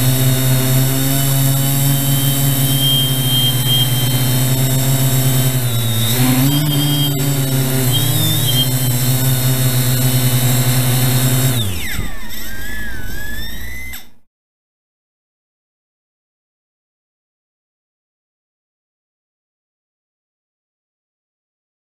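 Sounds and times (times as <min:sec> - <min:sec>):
quadcopter motors humming: 0:00.0 - 0:14.2
motors spinning down whine: 0:00.0 - 0:14.3.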